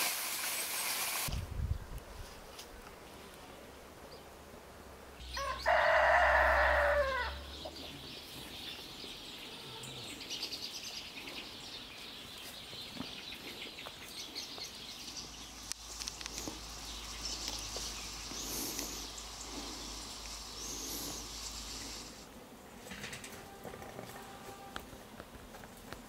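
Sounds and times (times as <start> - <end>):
rooster crowing: 5.3 - 7.5
light high chirps and ticks: 13.3 - 22.1.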